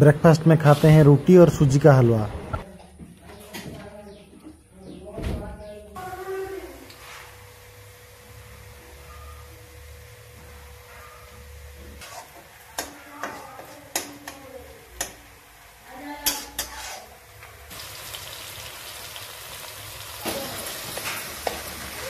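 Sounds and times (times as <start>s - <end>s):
masala sizzling: 6.0s - 22.0s
metal spoon clanking and scraping: 16.2s - 17.2s.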